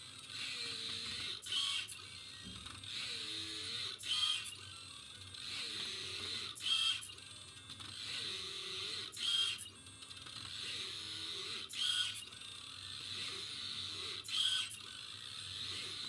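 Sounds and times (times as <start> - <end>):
stepper motors whirring: 0.0 - 16.0
buzzing servo click: 13.2 - 14.9.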